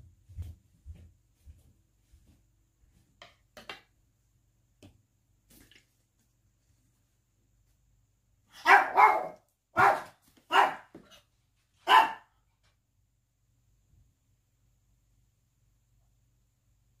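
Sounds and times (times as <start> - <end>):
dog barking: 8.5 - 11.0, 11.8 - 12.4.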